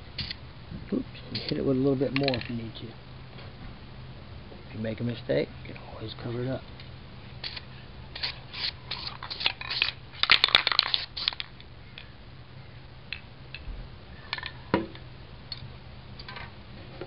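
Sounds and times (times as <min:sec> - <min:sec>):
stiff stencils crackling: 0:07.4 - 0:11.7.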